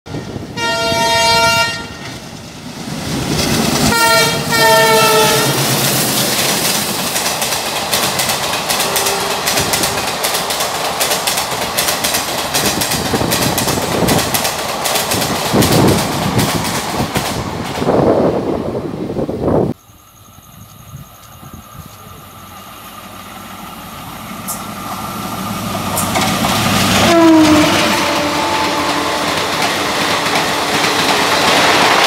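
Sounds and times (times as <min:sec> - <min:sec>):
diesel locomotive horn: 0:00.1 - 0:02.1, 0:03.9 - 0:05.7, 0:08.7 - 0:10.4, 0:26.8 - 0:31.3
train coaches rushing past: 0:00.1 - 0:19.7, 0:20.8 - 0:32.0
wheels clattering over rail joints: 0:03.1 - 0:18.0.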